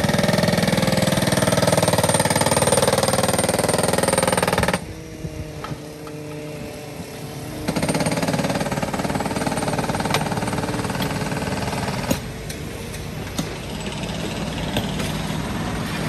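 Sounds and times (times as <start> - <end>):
power tool hammering rapidly: 0.0 - 4.9, 7.6 - 12.5
steady engine hum: 0.0 - 16.0.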